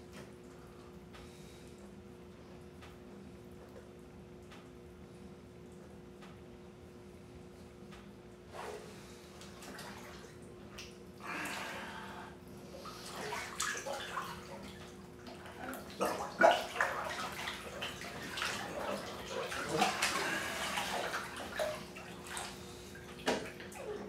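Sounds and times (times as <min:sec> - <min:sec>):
bathwater sloshing and splashing: 0:08.4 - 0:24.0.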